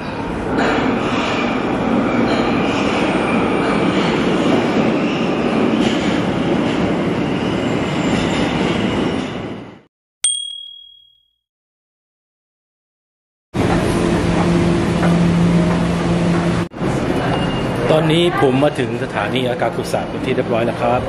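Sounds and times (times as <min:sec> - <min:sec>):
subway train rumble: 0:00.0 - 0:09.9, 0:13.6 - 0:21.0
bright ding: 0:10.2 - 0:11.4.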